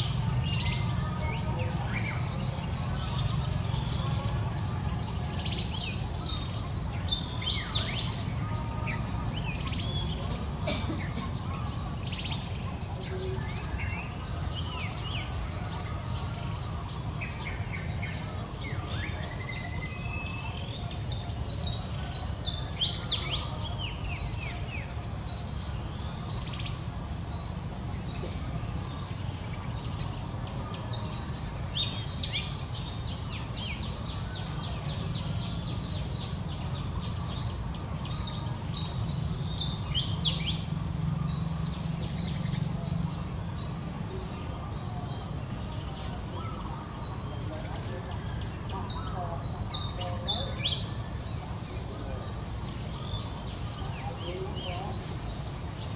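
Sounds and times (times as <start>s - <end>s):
small birds chirping: 0.0s - 55.9s.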